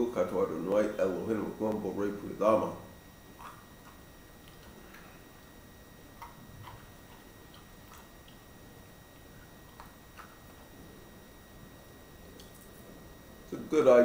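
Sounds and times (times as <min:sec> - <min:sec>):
quiet chewing: 0:03.2 - 0:13.0.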